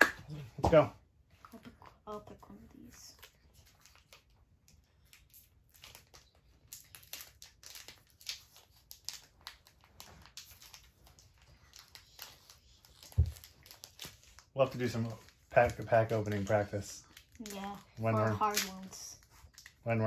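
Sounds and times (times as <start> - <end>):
foil wrapper crinkling and tearing: 3.1 - 20.0.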